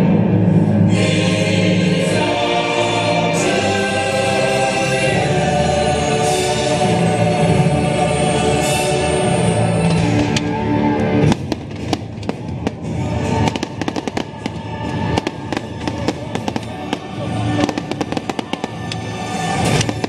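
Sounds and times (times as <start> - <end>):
orchestral music: 0.0 - 20.0
fireworks popping and crackling: 11.2 - 20.0.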